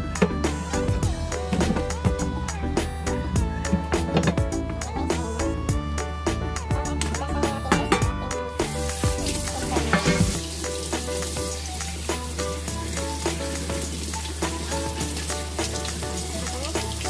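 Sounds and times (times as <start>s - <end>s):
background music: 0.0s - 17.0s
tap water running into colander: 7.7s - 17.0s.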